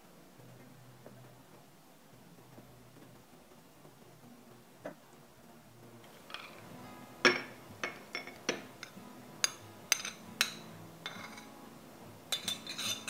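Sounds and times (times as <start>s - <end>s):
metal spoon clinking on ceramic bowls: 6.3s - 6.6s, 7.2s - 11.5s, 12.3s - 13.0s.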